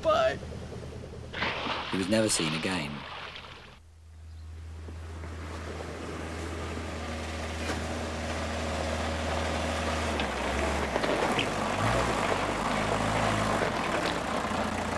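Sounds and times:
small vehicle engine running: 4.7 - 14.9.

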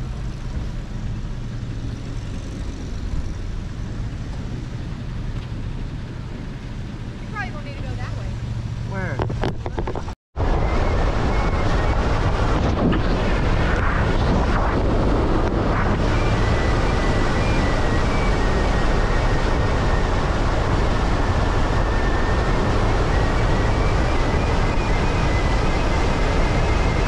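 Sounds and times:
truck road noise on gravel: 0.0 - 27.0
wind rushing over microphone: 0.0 - 27.0.

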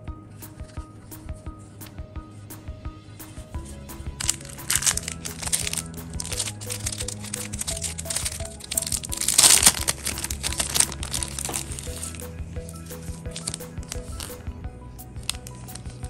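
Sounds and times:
soft background music: 0.0 - 16.0
plastic bags crinkling: 4.1 - 14.5, 15.2 - 16.0.

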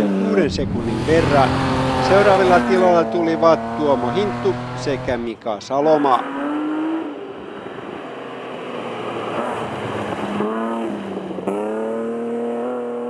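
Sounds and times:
rally car engine revving: 0.0 - 13.0
gravel noise: 0.4 - 5.3.

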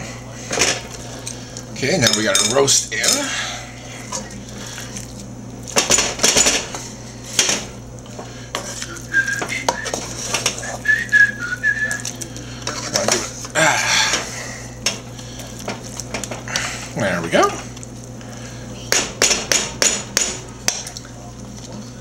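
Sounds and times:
wooden spoon scraping metal pot: 9.7 - 10.9.

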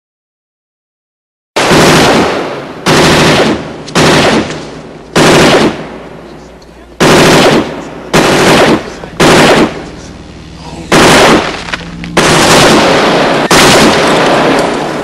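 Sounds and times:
loud distorted gunfire: 1.6 - 6.3, 7.0 - 15.0.

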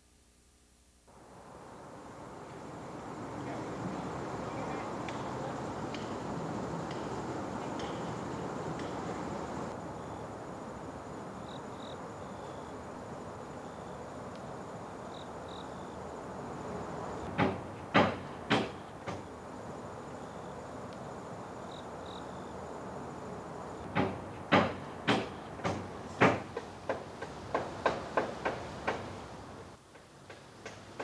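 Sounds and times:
steady hiss: 0.0 - 31.0
sharp knocks: 17.4 - 19.2, 23.9 - 29.1.

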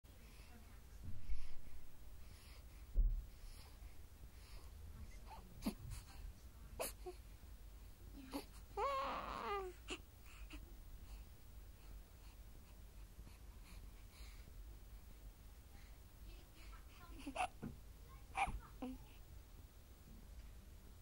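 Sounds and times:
low thumps: 2.9 - 3.4
baby whimpering: 8.2 - 10.6, 17.0 - 17.6, 18.4 - 19.1.

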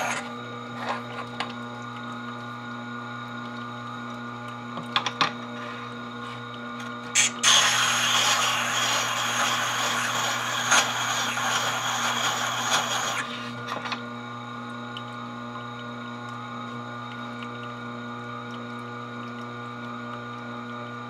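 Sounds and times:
sharpener motor humming: 0.0 - 0.4, 7.2 - 13.4.

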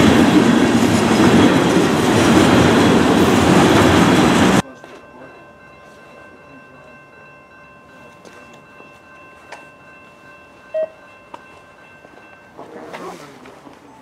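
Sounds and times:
faint steady high tones: 4.6 - 12.9.

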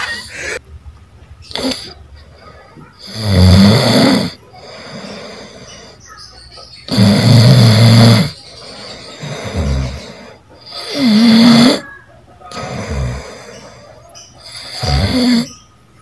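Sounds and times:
person snoring loudly: 1.5 - 2.0, 3.0 - 5.9, 6.9 - 11.9, 12.5 - 13.7, 14.4 - 15.5.

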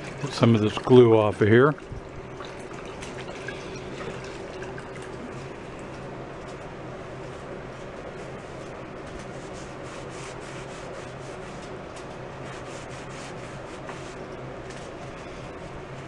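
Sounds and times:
steady low hum: 0.0 - 16.0
cloth rag rubbing on wood: 8.2 - 11.7, 12.4 - 14.2.

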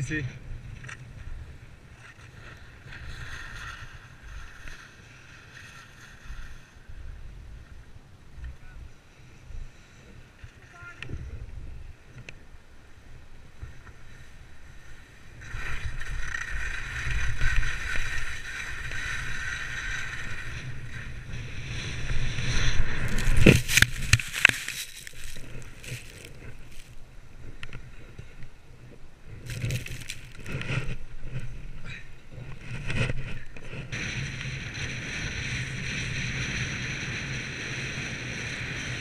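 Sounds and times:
wind rumbling on microphone: 0.0 - 39.0
skis scraping over hard snow: 1.8 - 6.9, 14.0 - 27.0, 29.3 - 31.7.

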